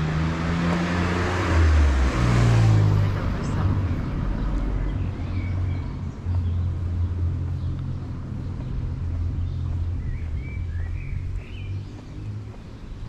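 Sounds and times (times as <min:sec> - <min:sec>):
vehicle engine running: 0:00.0 - 0:13.0
bird chirps: 0:03.5 - 0:13.0.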